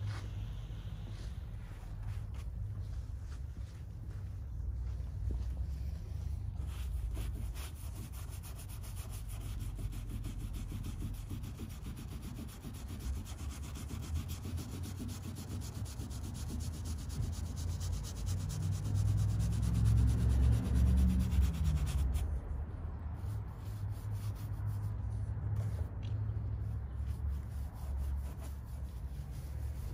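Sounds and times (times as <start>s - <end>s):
brush scrubbing fabric: 6.5s - 22.4s, 23.1s - 25.9s, 26.6s - 29.9s.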